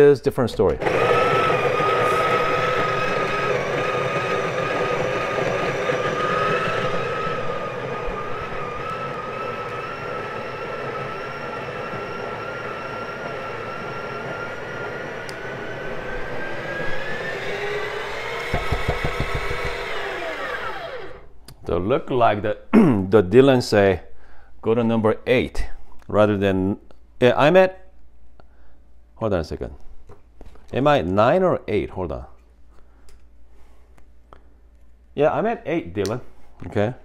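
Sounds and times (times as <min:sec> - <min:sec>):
coffee grinder grinding beans: 0:00.8 - 0:21.3.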